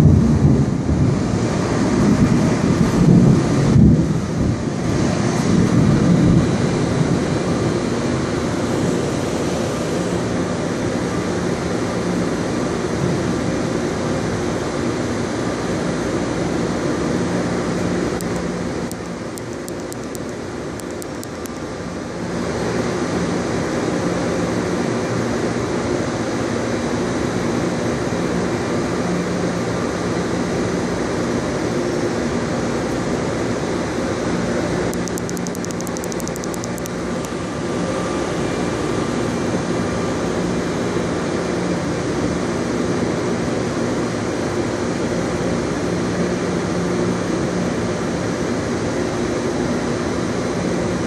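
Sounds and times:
airport machinery drone: 0:00.0 - 0:51.0.

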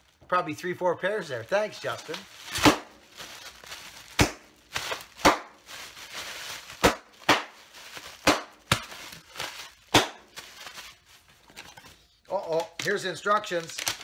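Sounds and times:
plastic wrapping crinkling: 0:01.5 - 0:14.0
plastic cracking sharply: 0:02.1 - 0:03.0, 0:04.1 - 0:05.7, 0:06.7 - 0:10.5, 0:12.5 - 0:14.0.

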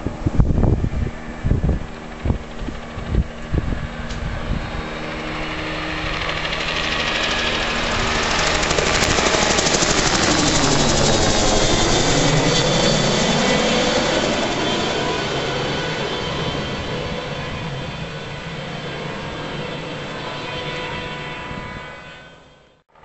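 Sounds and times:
helicopter rotor and engine: 0:00.0 - 0:23.0.

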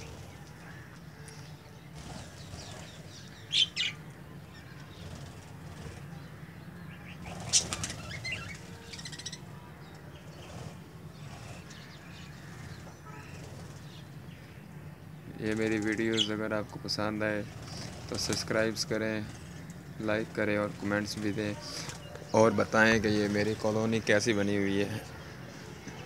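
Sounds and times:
budgerigars chirping and chattering: 0:00.0 - 0:26.0
wings fluttering: 0:00.0 - 0:26.0
loud sharp sounds: 0:17.1 - 0:24.1.

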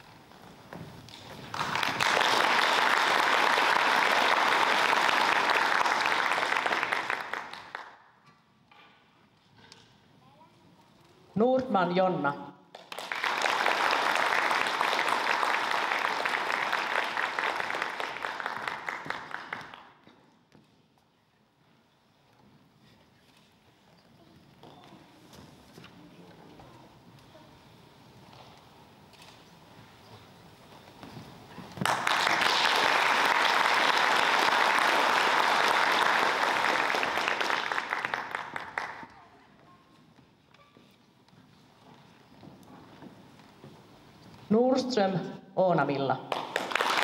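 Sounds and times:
audience applauding: 0:01.1 - 0:08.0, 0:12.8 - 0:19.9, 0:31.8 - 0:39.2, 0:46.3 - 0:47.0.

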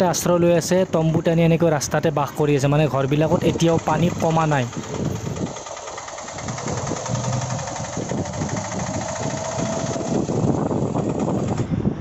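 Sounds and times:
road noise: 0:00.0 - 0:12.0
vehicle engine running: 0:02.7 - 0:12.0.

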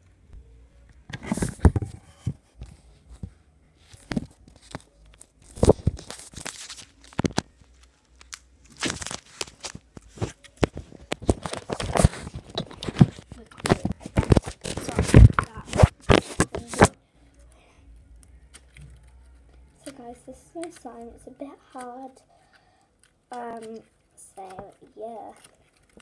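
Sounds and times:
slime stretching and ripping: 0:08.2 - 0:10.4.

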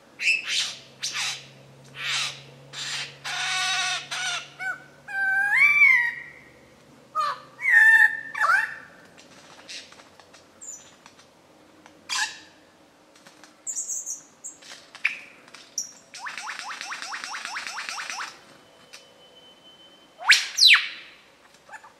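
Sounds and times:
lyrebird singing: 0:00.2 - 0:06.6, 0:07.2 - 0:08.9, 0:13.7 - 0:19.0, 0:20.2 - 0:21.1.

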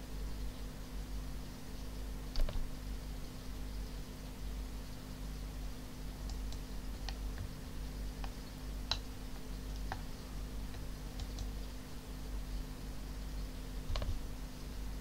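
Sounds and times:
low electrical hum: 0:00.0 - 0:15.0
computer mouse and keyboard clicks: 0:02.3 - 0:02.6, 0:09.7 - 0:10.1, 0:10.7 - 0:11.5, 0:13.9 - 0:14.2.

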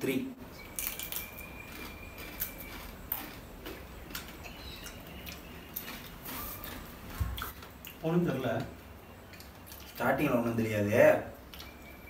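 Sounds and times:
people chewing crunchy chips: 0:00.6 - 0:08.0, 0:09.2 - 0:10.1, 0:11.4 - 0:12.0.

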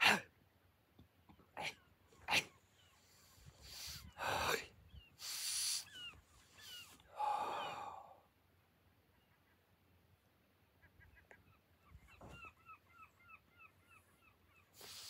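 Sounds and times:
bird chirps: 0:04.9 - 0:07.0, 0:10.9 - 0:15.0.

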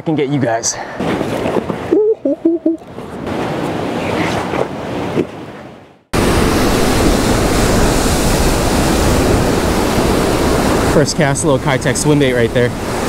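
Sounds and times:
wind buffeting microphone: 0:01.0 - 0:13.0
surf breaking over rocks: 0:06.1 - 0:13.0.

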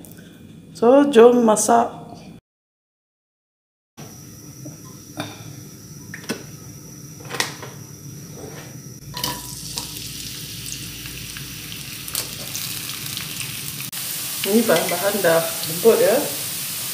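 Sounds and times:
food sizzling in hot oil: 0:09.0 - 0:16.9.

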